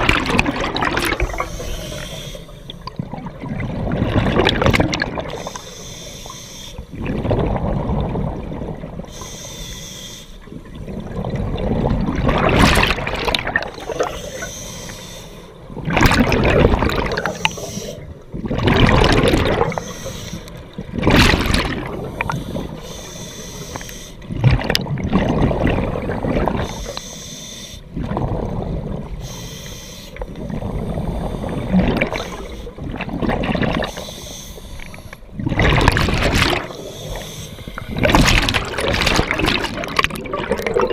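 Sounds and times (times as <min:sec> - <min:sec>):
exhaled bubbles gushing underwater: 0:00.0 - 0:05.8, 0:06.8 - 0:09.3, 0:10.4 - 0:14.8, 0:15.4 - 0:27.0, 0:27.9 - 0:29.4, 0:30.1 - 0:40.9
regulator hiss on inhale: 0:01.3 - 0:02.9, 0:05.3 - 0:06.9, 0:09.1 - 0:10.5, 0:13.8 - 0:15.6, 0:17.2 - 0:18.0, 0:19.7 - 0:20.6, 0:22.0 - 0:24.3, 0:26.6 - 0:27.9, 0:29.2 - 0:32.8, 0:33.8 - 0:35.3, 0:36.8 - 0:38.0.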